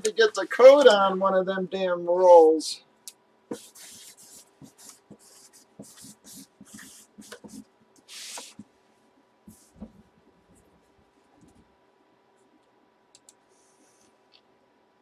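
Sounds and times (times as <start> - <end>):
marker scratching on cardboard: 3.5 - 8.6.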